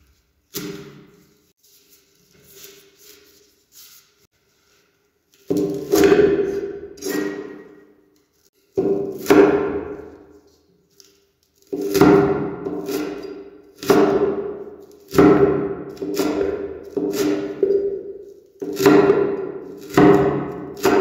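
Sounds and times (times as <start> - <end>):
knife chopping on wooden board: 0.5 - 1.2, 5.5 - 7.7, 8.8 - 10.2, 11.7 - 21.0.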